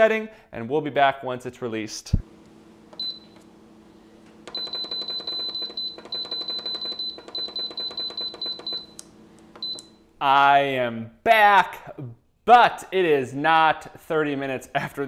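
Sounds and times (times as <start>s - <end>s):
pressure cooker beeping: 2.3s - 10.1s.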